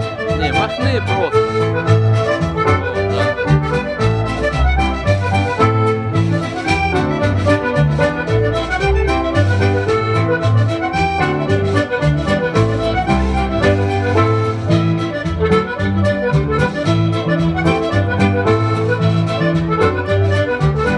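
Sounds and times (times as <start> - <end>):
folk dance music: 0.0 - 20.9.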